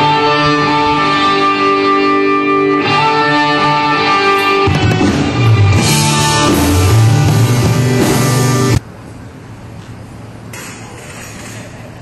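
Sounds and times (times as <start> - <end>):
country rock band playing: 0.0 - 8.8
ringing electric guitar chords: 0.0 - 8.8.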